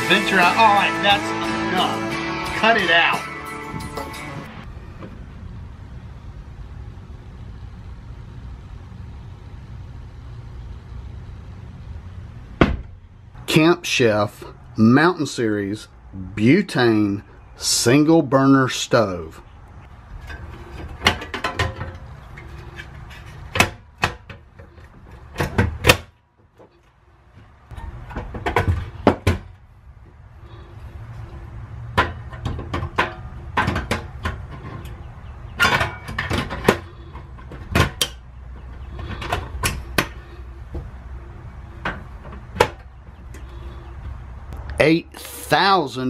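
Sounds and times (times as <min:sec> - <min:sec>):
metal stove clicks and knocks: 0:20.2 - 0:24.5, 0:32.0 - 0:40.2.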